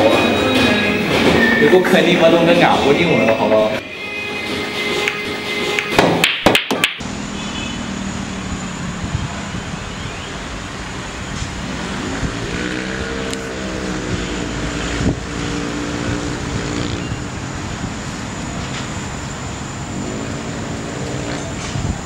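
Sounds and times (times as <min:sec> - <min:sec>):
street traffic noise: 0:00.0 - 0:22.0
passing vehicle engine: 0:07.0 - 0:22.0.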